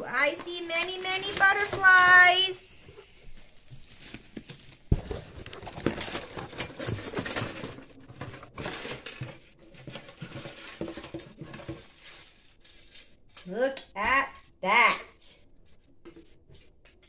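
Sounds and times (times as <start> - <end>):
plastic ornaments rustling and clattering: 0.0 - 13.5.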